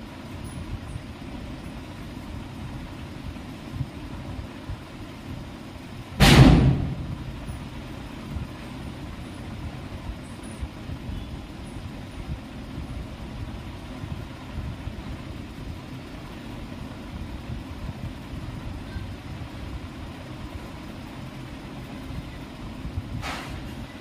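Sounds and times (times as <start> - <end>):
low rumbling background: 0.0 - 24.0
sharp loud bang: 6.2 - 7.2.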